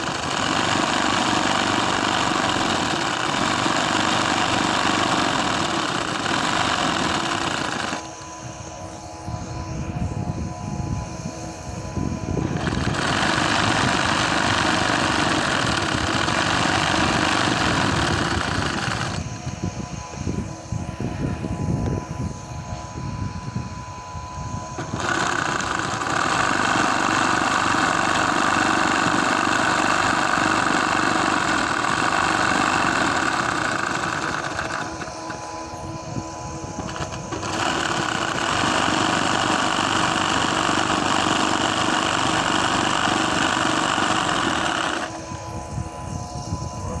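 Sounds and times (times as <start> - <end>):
embroidery machine stitching: 0.0 - 8.1, 12.5 - 19.3, 24.8 - 35.5, 36.8 - 45.2.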